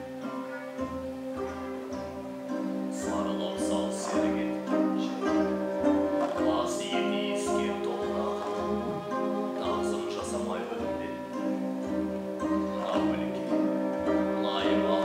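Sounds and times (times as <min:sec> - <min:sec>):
folk string instruments and zither: 0:00.0 - 0:15.0
low drum pulse: 0:07.5 - 0:11.0.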